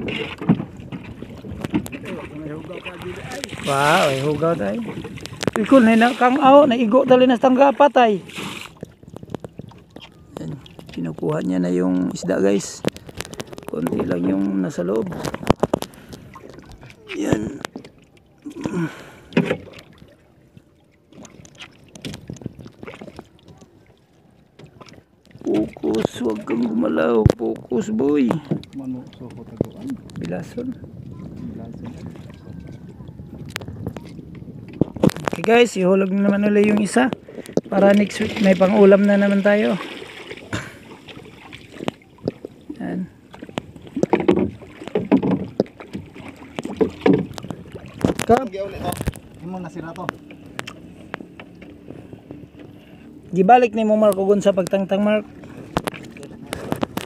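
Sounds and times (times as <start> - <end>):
water sloshing against boat: 0.0 - 57.0
knocks on wooden canoe hull: 44.0 - 48.4.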